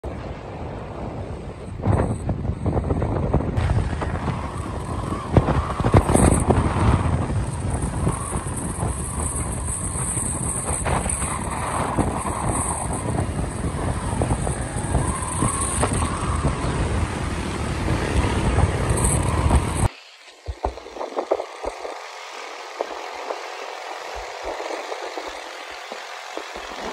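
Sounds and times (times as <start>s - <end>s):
road rumble: 0.0s - 26.9s
wind buffeting microphone: 0.0s - 26.9s
motorbike engine: 3.0s - 26.9s.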